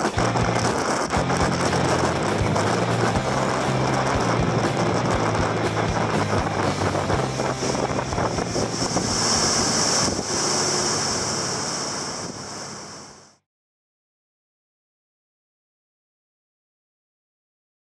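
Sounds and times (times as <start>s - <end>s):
wind on microphone: 0.0s - 13.1s
boat engine hum: 0.0s - 13.4s
water hissing along hull: 0.0s - 13.4s.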